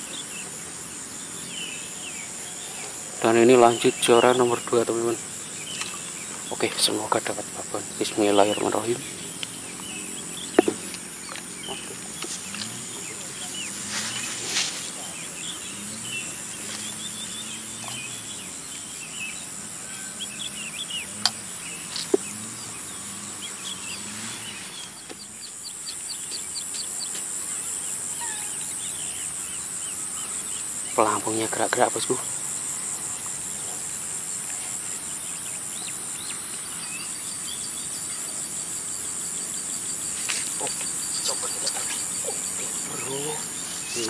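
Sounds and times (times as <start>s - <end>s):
high insect buzz: 0.0s - 44.0s
small birds chirping: 0.0s - 44.0s
chickens clucking: 2.3s - 15.2s, 40.0s - 44.0s.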